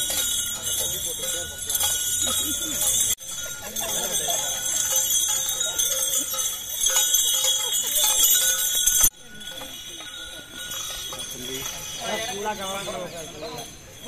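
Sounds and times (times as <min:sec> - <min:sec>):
bells jingling: 0:00.0 - 0:14.0
murmuring voices: 0:00.0 - 0:14.0.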